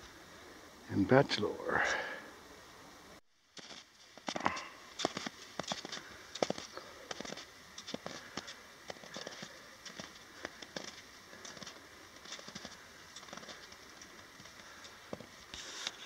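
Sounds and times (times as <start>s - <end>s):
footsteps crunching in snow: 3.5s - 16.0s.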